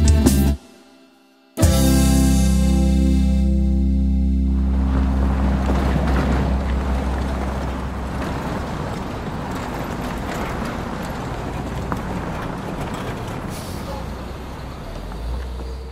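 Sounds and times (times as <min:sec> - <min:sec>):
low musical note: 0:01.6 - 0:08.2
wind-like rushing noise: 0:04.5 - 0:13.5.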